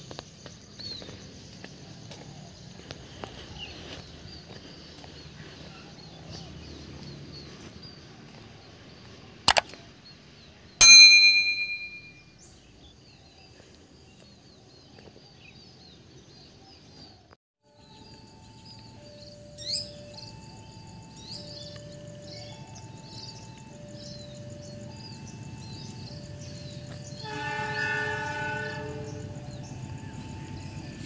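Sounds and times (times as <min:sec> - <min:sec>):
faint bird chirping: 0:00.0 - 0:31.0
double click: 0:09.5 - 0:09.7
bright bell ding: 0:10.8 - 0:12.2.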